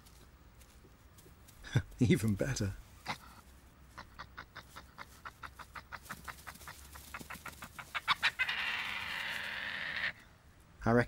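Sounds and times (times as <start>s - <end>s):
harsh noisy badger call: 3.9s - 10.2s
badgers chittering: 4.0s - 10.1s.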